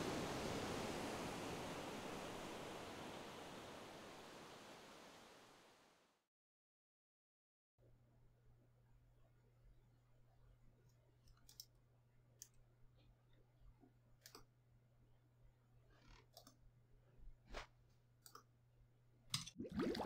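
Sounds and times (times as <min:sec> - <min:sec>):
computer mouse clicks: 0:11.2 - 0:11.8, 0:14.2 - 0:14.5, 0:16.0 - 0:16.6, 0:18.2 - 0:18.5.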